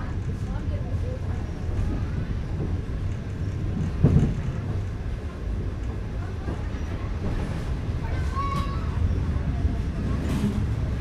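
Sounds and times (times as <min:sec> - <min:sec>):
train rumbling on rails: 0:00.0 - 0:11.0
train knock: 0:01.8 - 0:04.9.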